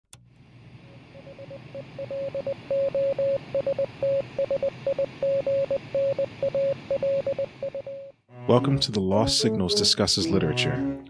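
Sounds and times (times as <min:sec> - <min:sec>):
morse code beeps: 0:01.3 - 0:08.2.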